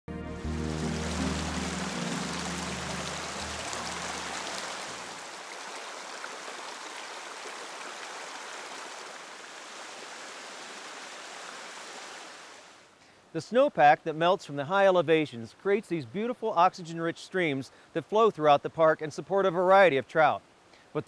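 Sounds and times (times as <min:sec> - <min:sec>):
low music notes: 0:00.1 - 0:05.2
stream rushing over rocks: 0:00.5 - 0:13.0.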